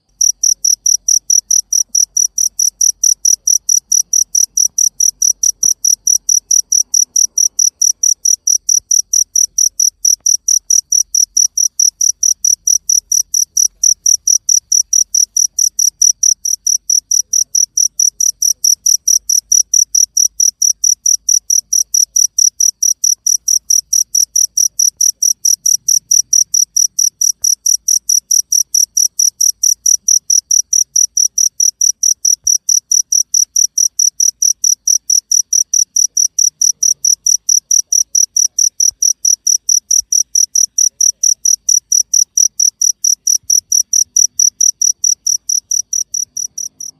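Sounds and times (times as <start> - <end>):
cricket chirping: 0.0 - 46.9.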